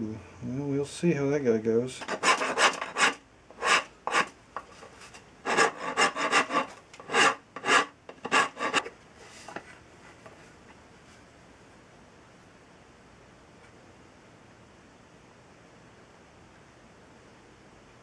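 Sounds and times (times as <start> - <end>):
hand rasp scraping wood: 2.0 - 4.3, 5.4 - 8.9.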